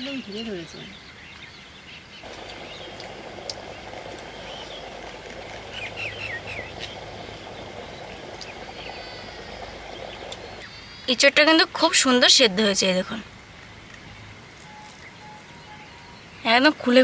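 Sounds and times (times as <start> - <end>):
birds chirping: 0.0 - 17.0
steady background noise: 0.0 - 17.0.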